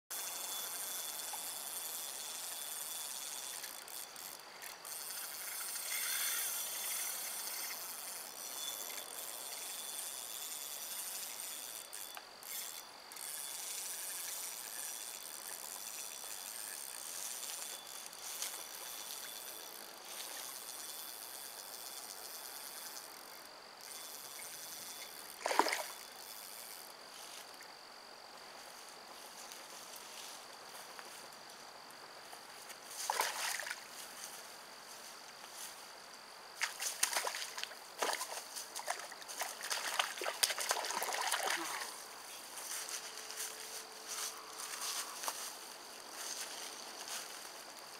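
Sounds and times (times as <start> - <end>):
running water hissing: 5.0 - 11.7.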